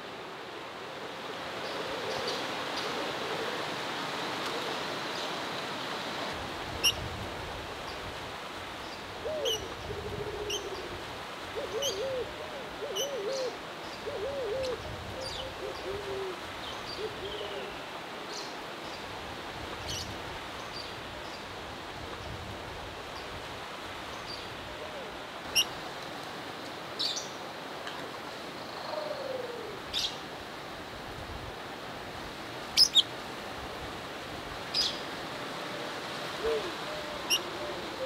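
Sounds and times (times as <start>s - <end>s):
bird hooting calls: 11.6s - 16.4s, 28.8s - 29.8s, 36.4s - 38.0s.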